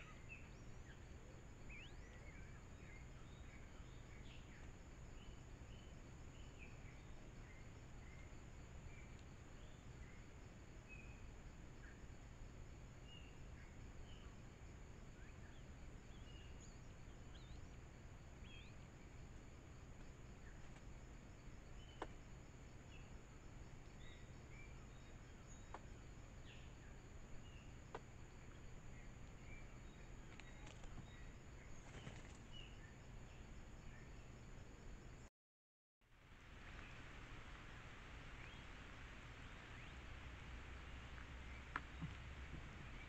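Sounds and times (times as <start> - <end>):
bird chirps: 0.0 - 10.2, 15.2 - 17.7, 18.4 - 18.9.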